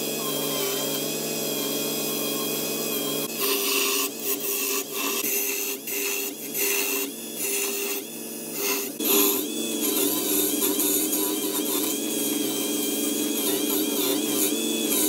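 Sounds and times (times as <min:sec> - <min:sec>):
turning tool scraping wood: 0:00.0 - 0:15.0
wood lathe motor hum: 0:00.0 - 0:15.0.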